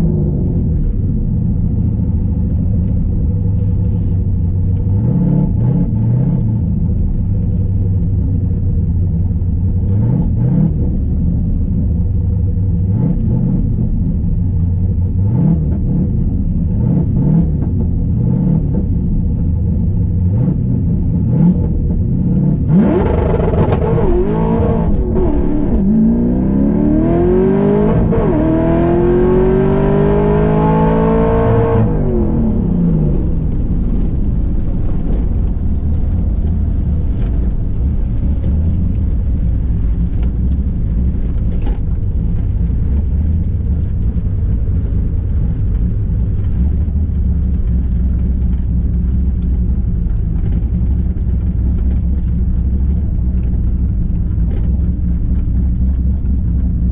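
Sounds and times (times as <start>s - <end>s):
race car engine revving: 20.2s - 56.4s.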